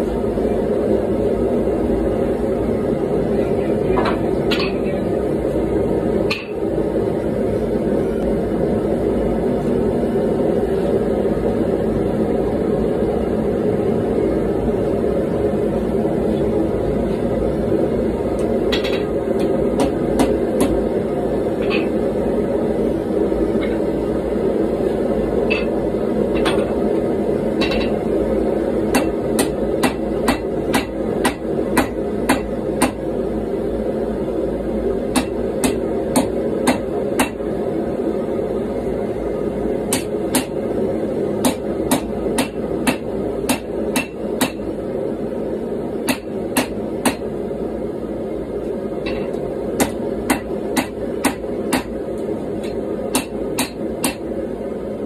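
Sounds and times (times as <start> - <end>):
gas forge running: 0.0 - 55.0
hammer striking metal on anvil: 6.3 - 6.6, 25.5 - 25.8, 27.6 - 28.0, 28.9 - 33.0, 35.1 - 37.4, 39.9 - 40.6, 41.4 - 44.6, 46.0 - 47.3, 49.0 - 51.9, 52.6 - 54.2.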